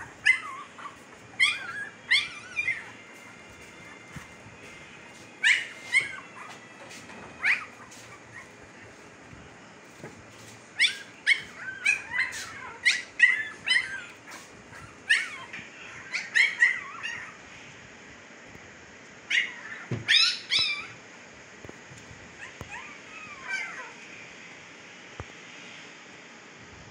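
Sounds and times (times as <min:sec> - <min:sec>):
puppies yelping: 0:00.0 - 0:09.0, 0:10.8 - 0:17.4, 0:19.3 - 0:21.0, 0:22.4 - 0:24.0.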